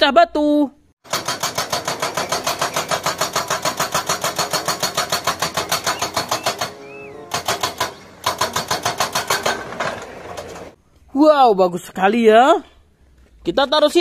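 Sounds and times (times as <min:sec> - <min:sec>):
hydraulic breaker pounding rock: 0:01.0 - 0:10.8.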